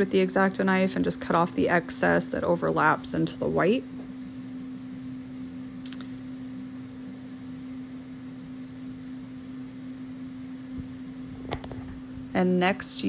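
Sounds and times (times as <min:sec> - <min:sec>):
steady low hum: 0:00.0 - 0:13.0
short click: 0:05.8 - 0:06.2.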